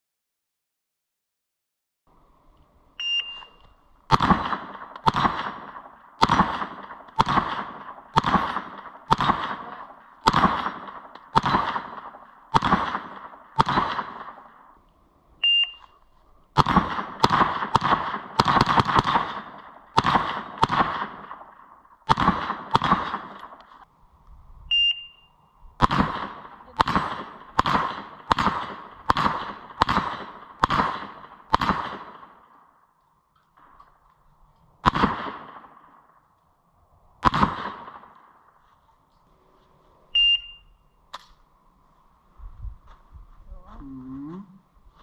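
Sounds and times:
short electronic beep: 3.0s - 3.7s, 15.4s - 16.0s, 24.7s - 25.4s, 40.2s - 40.9s
gunshots: 4.1s - 14.8s, 16.6s - 23.8s, 25.8s - 32.8s, 34.8s - 36.3s, 37.2s - 38.5s.

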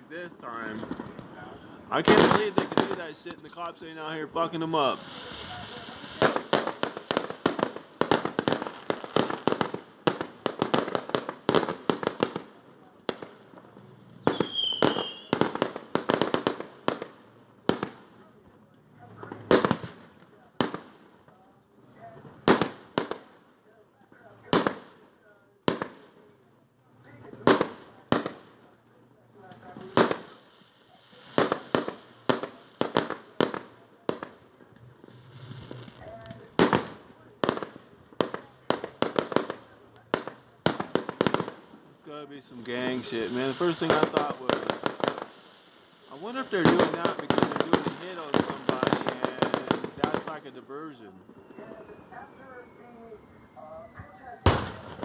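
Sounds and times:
fireworks cracks and bangs: 0.0s - 53.2s, 53.9s - 55.0s
high firework whistle: 14.2s - 15.4s, 51.1s - 54.8s.

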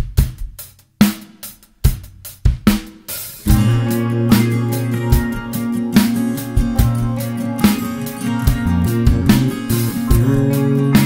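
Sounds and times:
drum strokes: 0.0s - 11.0s
strummed acoustic guitar: 3.4s - 11.0s
sustained bass notes: 3.4s - 11.0s.

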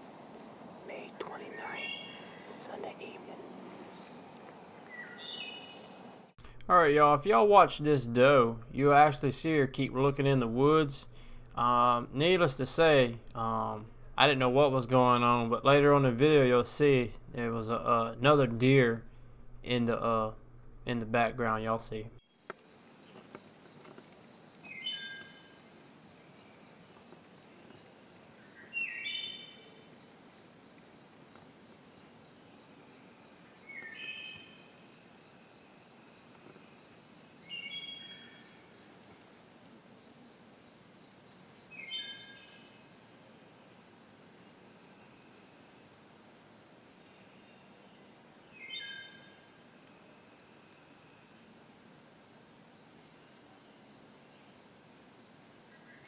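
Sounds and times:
high-pitched insect drone: 0.0s - 6.3s
bird singing: 0.9s - 6.3s, 22.3s - 26.8s, 28.1s - 30.1s, 31.9s - 35.0s, 37.4s - 39.1s, 40.7s - 43.0s, 47.2s - 49.9s.

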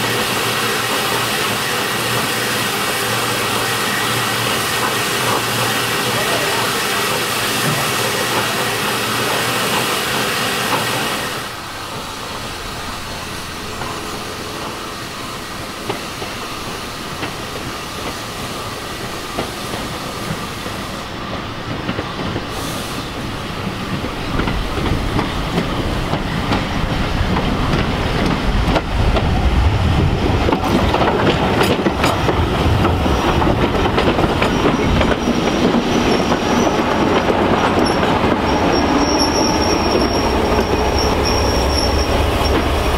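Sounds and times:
diesel train engine: 0.0s - 42.9s
wheels clicking over rail joints: 30.4s - 39.1s
wheels squealing: 34.3s - 42.9s.

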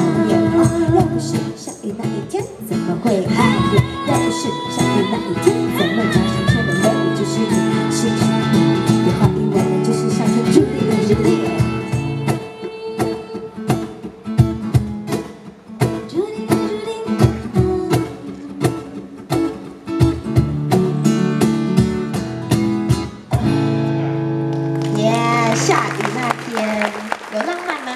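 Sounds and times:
person singing: 0.0s - 14.0s
acoustic guitar strummed chords: 0.0s - 24.9s.

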